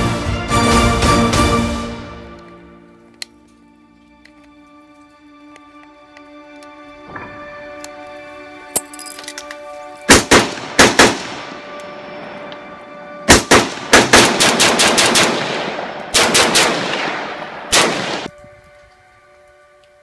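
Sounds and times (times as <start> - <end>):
rifle shots with echo: 10.1 - 11.8, 13.3 - 18.4.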